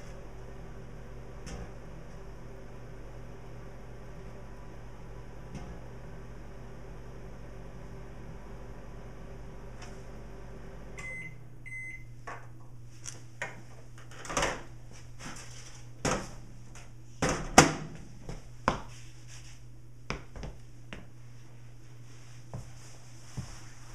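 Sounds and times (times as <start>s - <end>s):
microwave oven hum: 0.0s - 23.9s
steady low hum: 0.0s - 23.9s
microwave short beeps: 11.0s - 12.2s.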